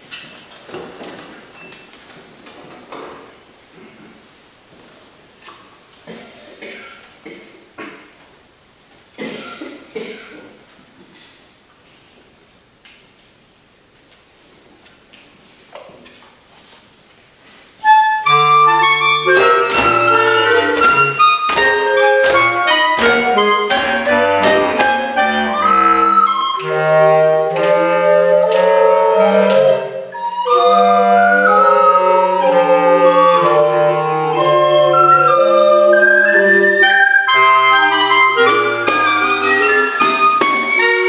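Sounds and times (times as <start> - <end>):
woodwind ensemble playing: 17.8 - 41.0.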